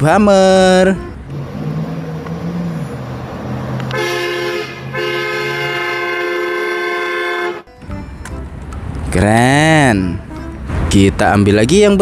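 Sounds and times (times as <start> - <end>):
low engine hum: 1.0 - 6.2
car horn blasts: 3.9 - 8.2.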